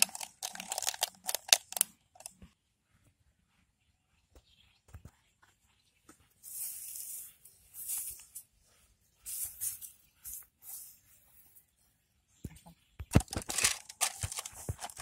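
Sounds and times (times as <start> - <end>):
plastic bottle rustling and scraping: 0.0 - 2.3, 13.1 - 15.0.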